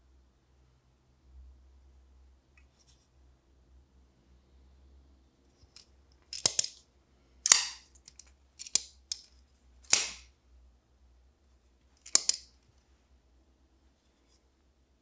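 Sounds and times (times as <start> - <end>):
folding knife snapping shut: 7.5 - 7.8, 9.9 - 10.3, 12.1 - 12.5.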